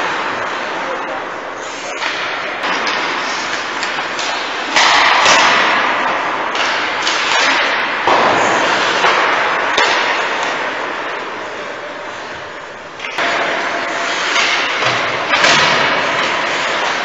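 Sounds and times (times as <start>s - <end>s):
hockey sticks and puck knocking: 1.9s - 11.3s, 13.0s - 17.0s
skate blades scraping ice: 8.4s - 10.5s, 13.6s - 17.0s.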